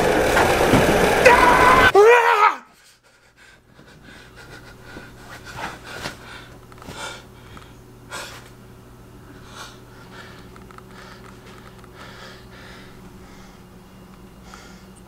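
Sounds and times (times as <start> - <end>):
faint room hum: 0.0 - 15.0
man breathing heavily: 2.8 - 8.6, 9.2 - 15.0.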